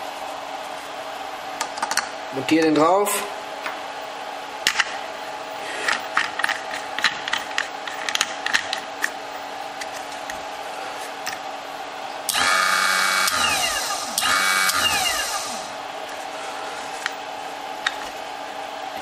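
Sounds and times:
electric motor whining down: 12.3s - 15.7s.

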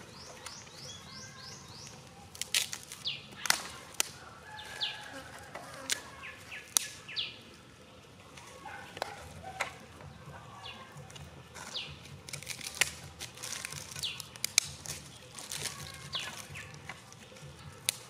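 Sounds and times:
birds chirping: 0.0s - 18.0s
rustling of dry leaves: 0.0s - 18.0s.

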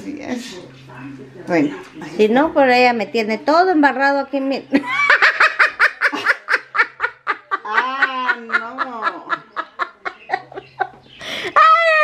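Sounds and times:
elderly woman laughing: 4.7s - 12.0s.

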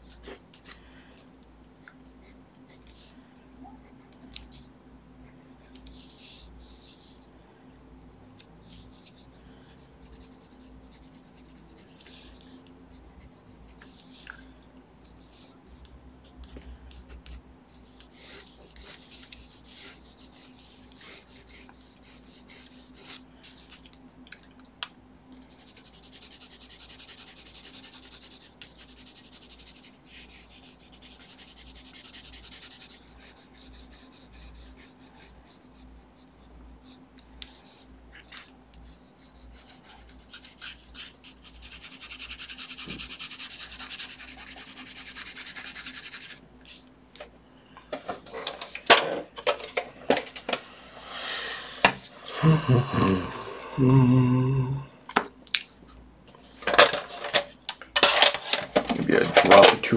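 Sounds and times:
colored pencil scratching on paper: 3.8s - 7.2s, 9.8s - 14.2s, 15.2s - 23.8s, 25.5s - 37.9s, 38.7s - 46.8s.

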